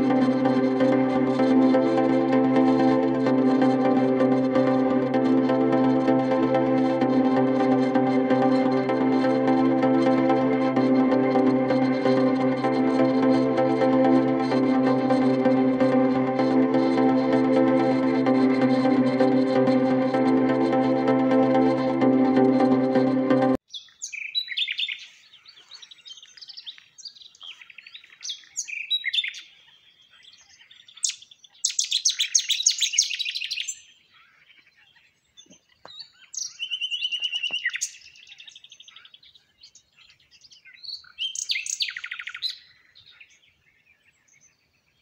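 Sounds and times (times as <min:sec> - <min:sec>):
songbirds chirping and trilling: 0:23.6 - 0:45.0.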